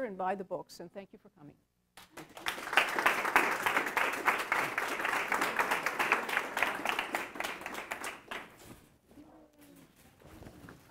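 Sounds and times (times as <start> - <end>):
audience applauding: 2.0 - 8.6.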